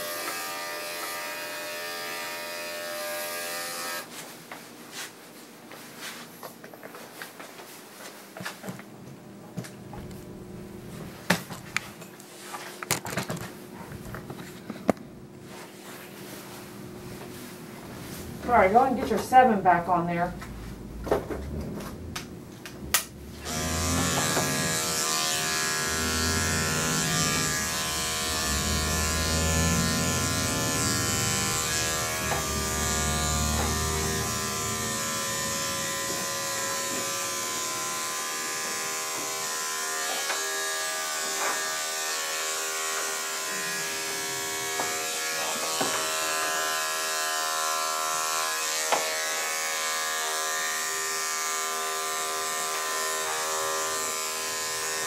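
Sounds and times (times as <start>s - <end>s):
electric clippers buzzing: 0.0s - 4.1s, 22.8s - 55.0s.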